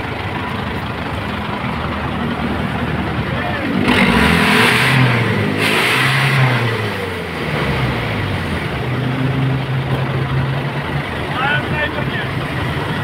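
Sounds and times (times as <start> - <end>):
truck engine revving and idling: 0.0 - 13.0.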